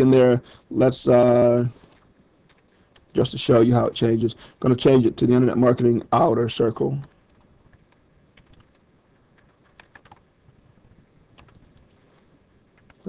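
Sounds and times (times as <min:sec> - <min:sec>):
faint keyboard keystrokes: 0:01.9 - 0:03.1, 0:07.0 - 0:10.2, 0:11.3 - 0:12.0.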